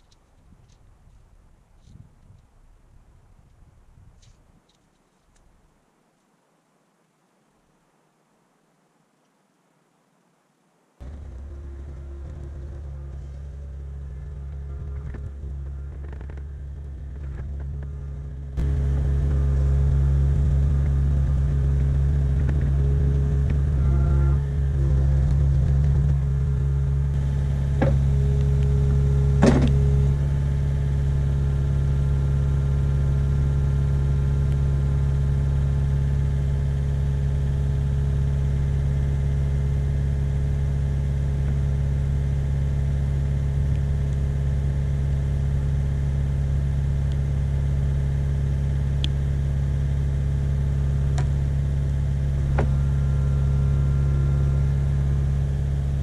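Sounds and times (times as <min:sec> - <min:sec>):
diesel engine running: 0:11.0 - 0:56.0
sharp knocks: 0:29.4 - 0:29.8.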